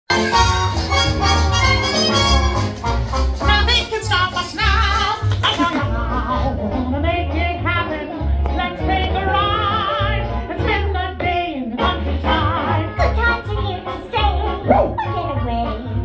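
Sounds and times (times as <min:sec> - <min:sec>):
upbeat cartoon music: 0:00.1 - 0:16.0.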